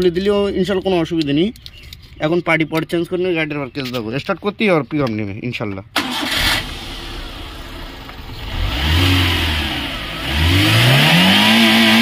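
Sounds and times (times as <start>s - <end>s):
car engine revving: 6.0s - 12.0s.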